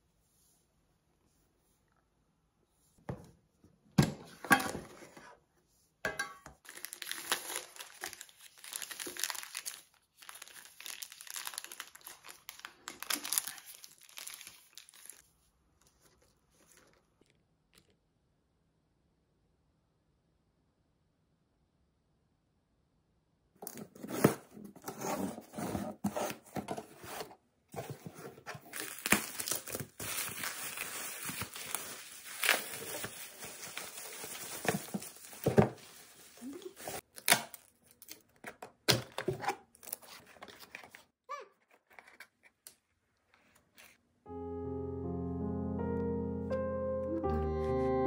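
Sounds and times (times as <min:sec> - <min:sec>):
bubble wrap crinkling and tearing: 0:06.6 - 0:15.3, 0:28.4 - 0:38.4.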